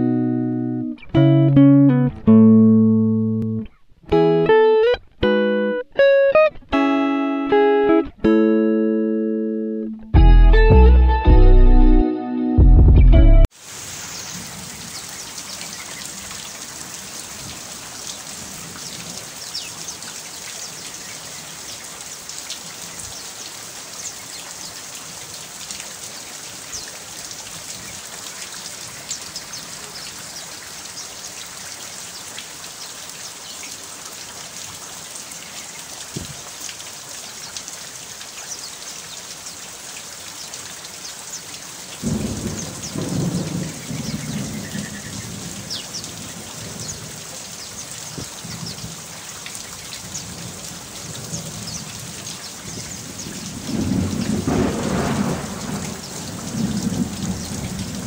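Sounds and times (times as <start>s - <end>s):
steady rain falling: 13.4s - 58.0s
low rumble of thunder: 42.0s - 47.0s, 52.7s - 58.0s.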